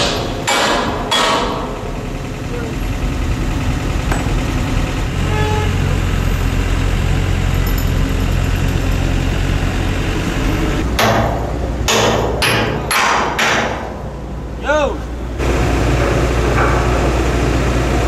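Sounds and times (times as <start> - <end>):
machine engine running: 0.0 - 11.0, 15.2 - 18.0.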